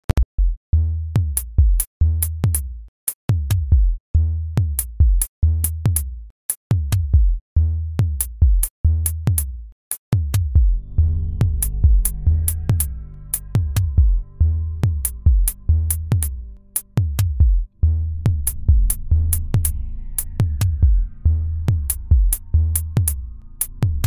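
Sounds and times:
deep kick drums falling in pitch: 3.3 - 4.0, 4.6 - 5.3, 6.7 - 7.4, 10.2 - 12.9, 13.5 - 16.4, 17.0 - 24.0
closed hi-hat ticks: 21.8 - 23.9.

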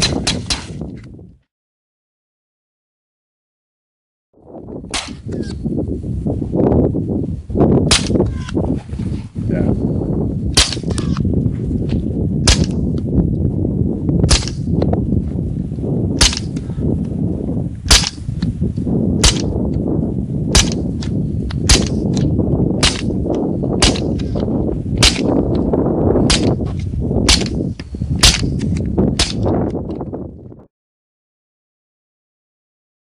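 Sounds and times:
low rumble: 4.4 - 30.7
suppressed pistol shots: 4.9 - 5.4, 7.9 - 8.2, 10.6 - 11.2, 12.4 - 12.8, 14.3 - 14.7, 16.2 - 16.6, 17.9 - 18.3, 19.2 - 19.6, 20.5 - 23.2, 23.8 - 24.3, 25.0 - 25.4, 26.3 - 26.6, 27.3 - 27.6, 28.2 - 29.5.

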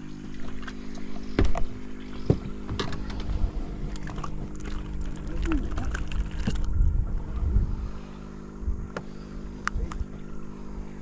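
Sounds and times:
boat engine humming: 0.0 - 11.0
wind buffeting microphone: 2.3 - 9.0.

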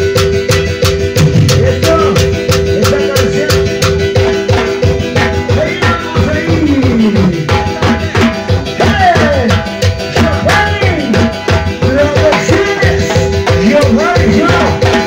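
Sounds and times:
electronic keyboard melody: 0.0 - 15.0
fast drum-kit beat with cymbals: 0.0 - 15.0.

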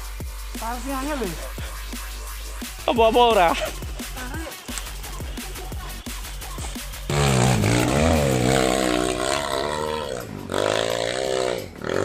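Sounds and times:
dirt bike engine revving: 7.1 - 12.0.

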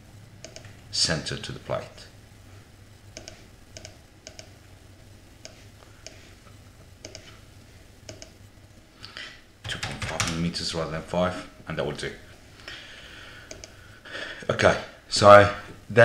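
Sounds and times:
faint low hum: 0.0 - 16.0
computer mouse clicks: 0.4 - 0.8, 3.2 - 4.6, 5.4 - 6.2, 7.0 - 7.4, 8.1 - 8.4, 13.4 - 13.8.

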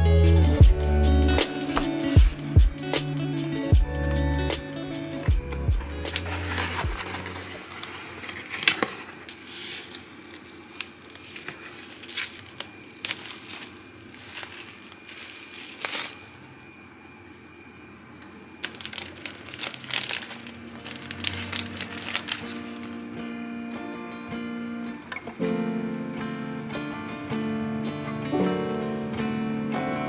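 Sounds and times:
plastic and cardboard crinkling: 1.5 - 2.5, 5.5 - 16.8, 18.6 - 23.1.

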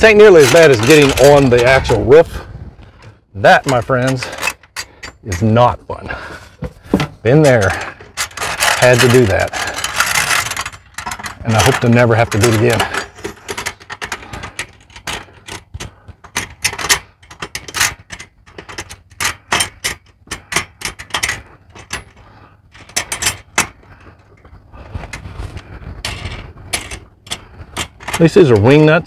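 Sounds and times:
metal hardware clicking and clinking: 0.0 - 2.0, 3.5 - 5.7, 6.6 - 24.5, 26.0 - 29.0
wind rumble on microphone: 1.4 - 3.0, 24.6 - 27.9.

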